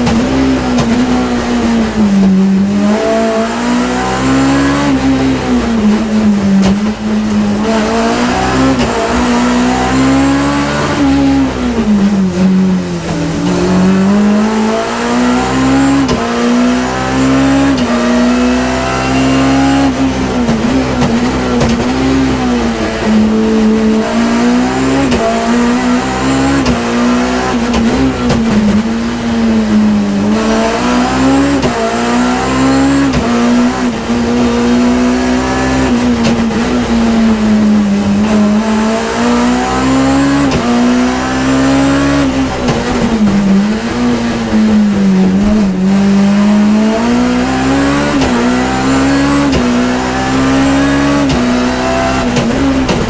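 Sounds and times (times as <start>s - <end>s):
car engine revving high: 0.0s - 53.0s.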